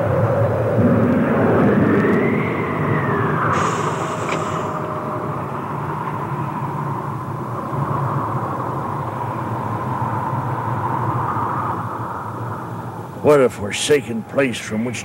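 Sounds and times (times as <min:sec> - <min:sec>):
steady rushing rumbling ambience: 0:00.0 - 0:15.0.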